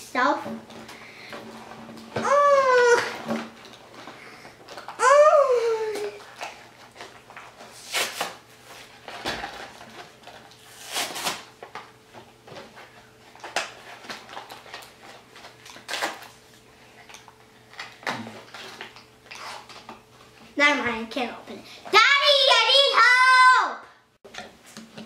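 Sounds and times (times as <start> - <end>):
plastic packaging crinkling: 12.6 - 19.9.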